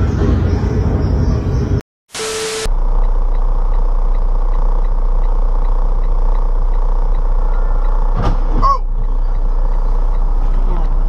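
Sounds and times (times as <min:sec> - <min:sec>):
car road and engine noise: 0:00.0 - 0:11.0
faint regular ticking: 0:02.8 - 0:08.2, 0:08.8 - 0:11.0.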